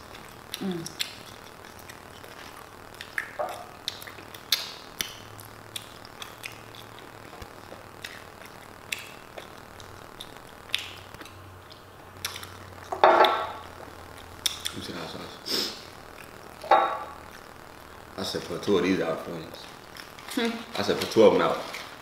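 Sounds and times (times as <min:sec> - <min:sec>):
chewing food: 0:00.0 - 0:14.8, 0:16.0 - 0:17.6
wet mouth clicks and smacks: 0:00.5 - 0:02.0, 0:02.9 - 0:07.0.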